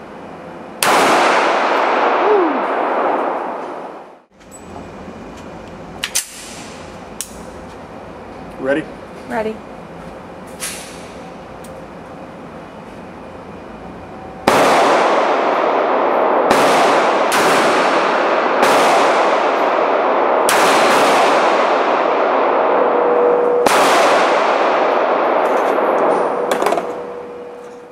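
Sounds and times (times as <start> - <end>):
pistol shots echoing: 14.5 - 26.9.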